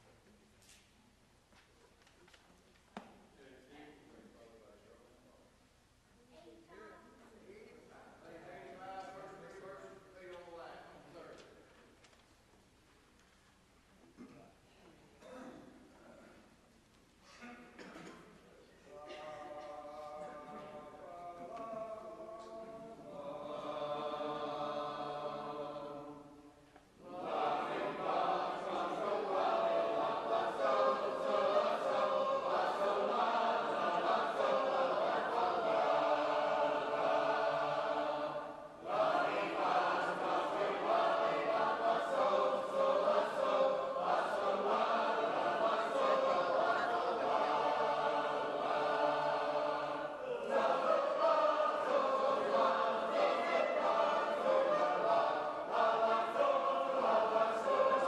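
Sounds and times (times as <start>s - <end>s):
group singing a cappella: 18.9s - 58.0s.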